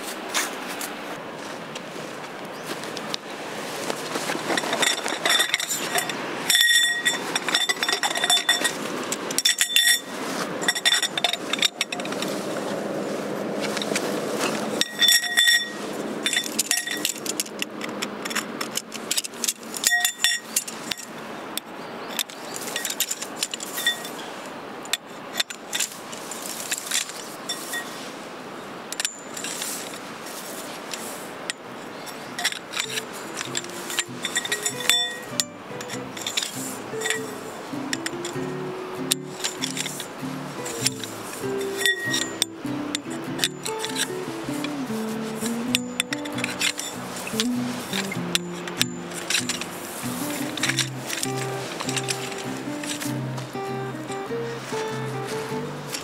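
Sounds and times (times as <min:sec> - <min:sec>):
rustling handling noise: 0:00.0 - 0:56.0
metal objects clinking: 0:04.4 - 0:12.3, 0:14.8 - 0:21.2, 0:22.1 - 0:24.2, 0:28.9 - 0:30.0, 0:30.9 - 0:56.0.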